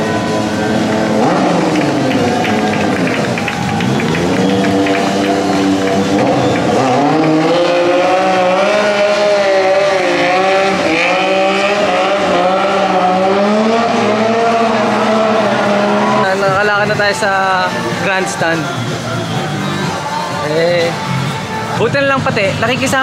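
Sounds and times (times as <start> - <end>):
motorcycle engine revving loudly: 0.0 - 18.1.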